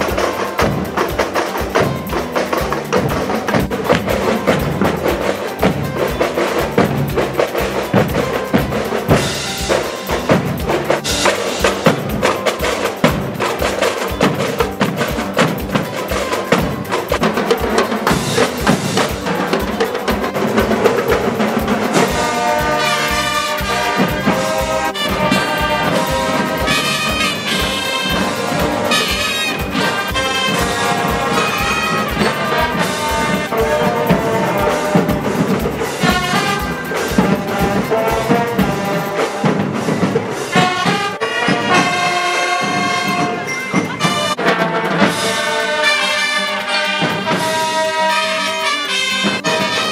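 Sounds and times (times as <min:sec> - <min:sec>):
bass drum beat: 0:00.0 - 0:43.4
brass horns playing: 0:00.0 - 0:49.9.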